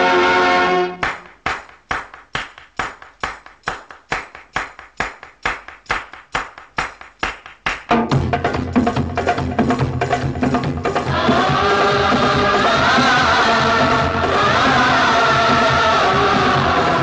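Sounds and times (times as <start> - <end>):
held instrumental chord: 0.0 - 1.0.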